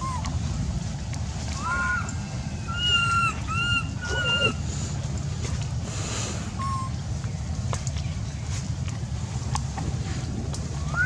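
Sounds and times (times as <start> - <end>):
steady low rumble: 0.0 - 11.0
infant monkey cooing cries: 1.6 - 4.7.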